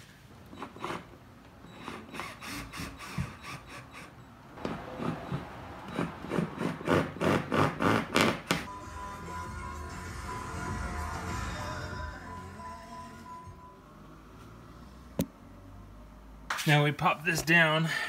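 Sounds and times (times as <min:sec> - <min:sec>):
background music: 0:08.7 - 0:14.1.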